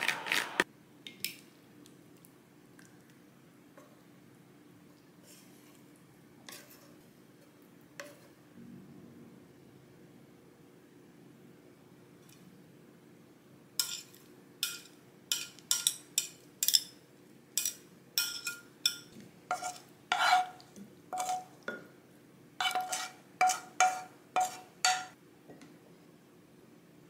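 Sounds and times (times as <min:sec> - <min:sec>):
metal tongs clinking on ceramic plates: 0:13.8 - 0:17.0, 0:17.6 - 0:19.8, 0:22.7 - 0:25.2.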